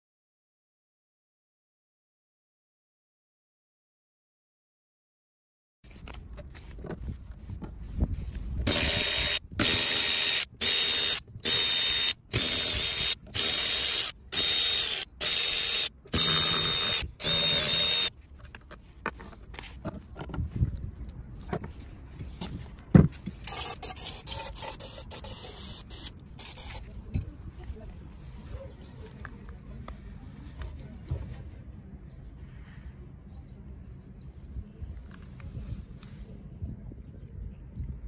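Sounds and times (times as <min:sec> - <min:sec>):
hissing spray bursts: 0:23.5 - 0:26.8.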